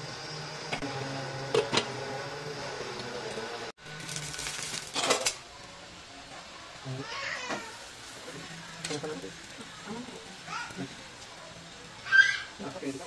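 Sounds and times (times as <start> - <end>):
cookware clattering and scraping: 4.9 - 5.4.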